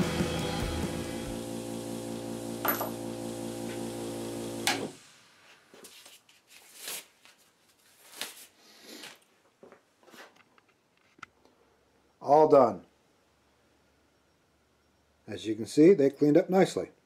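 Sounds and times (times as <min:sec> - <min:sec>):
bench grinder humming: 0:00.0 - 0:05.0
gloves rustling and snapping: 0:05.8 - 0:11.3.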